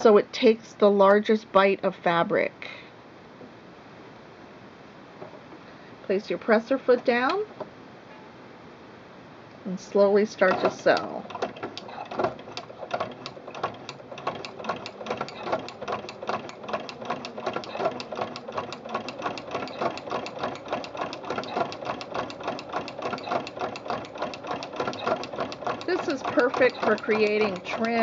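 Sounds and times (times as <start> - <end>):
sewing machine ticking: 10.3 - 28.0.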